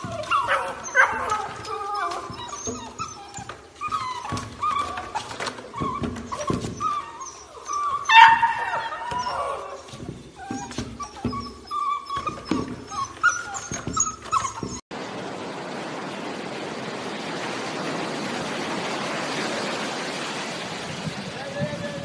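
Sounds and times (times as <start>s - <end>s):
puppies whimpering and whining: 0.0s - 14.9s
steady rushing noise: 14.9s - 22.0s.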